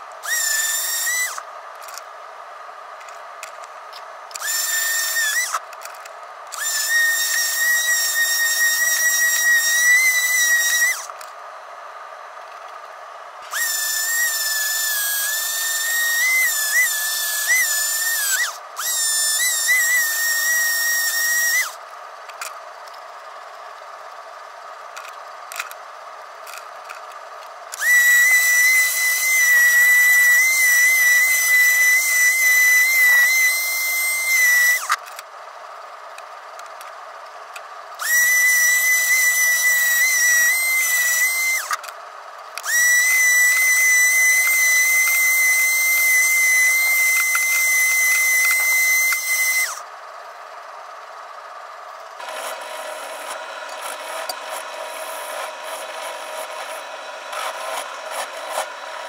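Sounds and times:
electric sander whining: 0:00.0 - 0:02.0, 0:04.3 - 0:11.3, 0:13.4 - 0:21.8, 0:27.7 - 0:35.2, 0:38.0 - 0:41.9, 0:42.6 - 0:49.9, 0:52.2 - 0:59.0.

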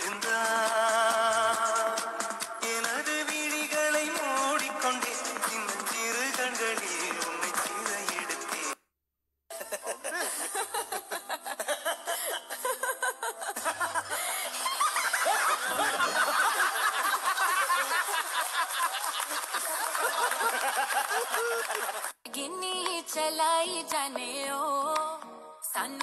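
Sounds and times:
music: 0:00.0 - 0:08.8, 0:22.2 - 0:26.0
loud choppy laughter: 0:09.5 - 0:22.1.

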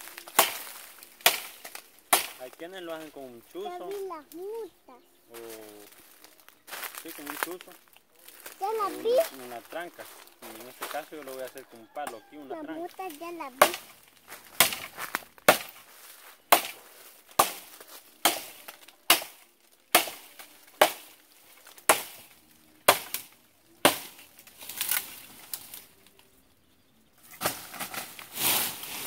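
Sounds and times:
rustling in dry leaves: 0:00.0 - 0:29.0
machete chopping wood: 0:00.2 - 0:02.5, 0:13.5 - 0:15.9, 0:16.5 - 0:25.7, 0:27.3 - 0:28.6.

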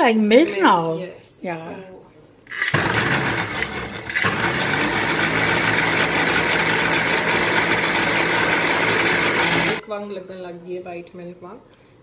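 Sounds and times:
mixer grinder running: 0:02.5 - 0:09.8.

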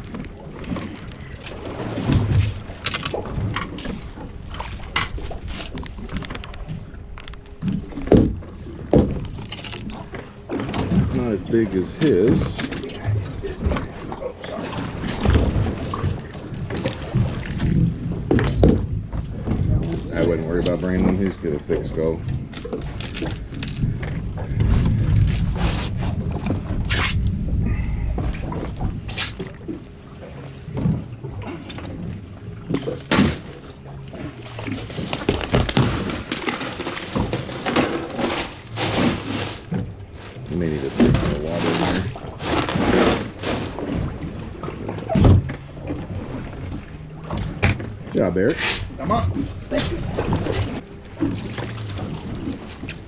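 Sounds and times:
water washing against hull: 0:00.0 - 0:53.0
fish and gear knocking on boat: 0:07.6 - 0:09.4.

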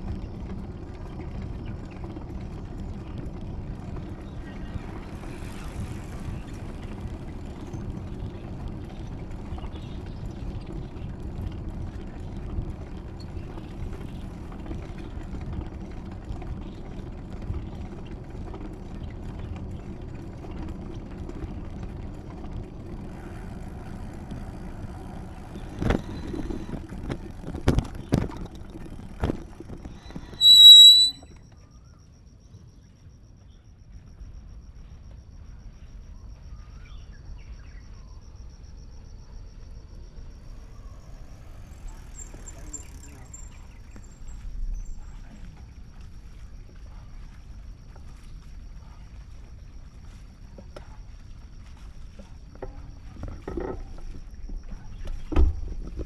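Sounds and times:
bicycle rolling on pavement: 0:00.0 - 0:31.2, 0:38.4 - 0:56.0
bicycle brake squeal: 0:29.9 - 0:31.4, 0:41.5 - 0:45.0.

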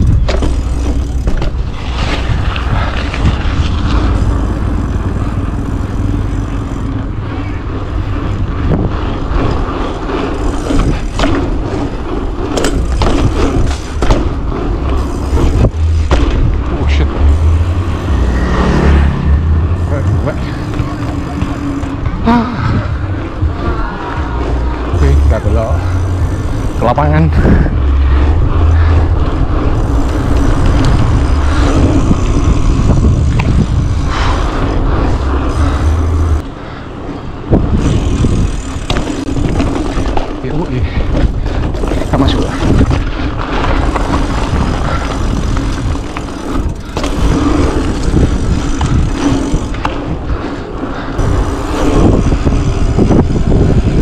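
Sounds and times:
bike knocking and rattling: 0:00.0 - 0:54.0
tyre noise on pavement: 0:00.0 - 0:54.0
wind rumbling on microphone: 0:00.0 - 0:54.0.

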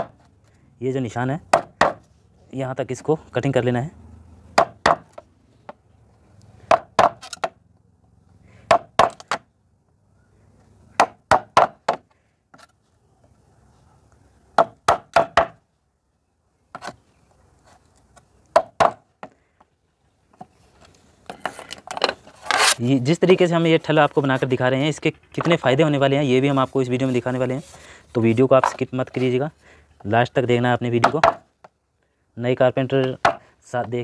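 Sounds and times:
hammer striking chisel: 0:01.5 - 0:02.0, 0:04.6 - 0:05.2, 0:06.7 - 0:07.6, 0:08.7 - 0:09.4, 0:14.6 - 0:15.6, 0:31.0 - 0:31.5.

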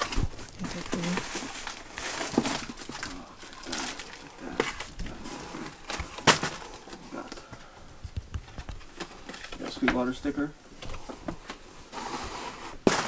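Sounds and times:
cardboard box rustling and scraping: 0:00.0 - 0:07.2, 0:11.0 - 0:13.0.

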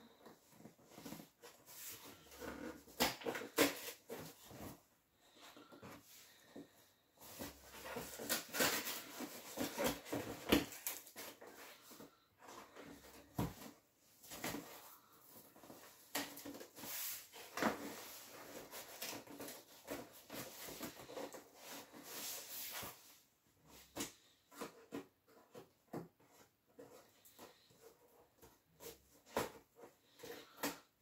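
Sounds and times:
cardboard scraping and tearing: 0:07.3 - 0:11.9.

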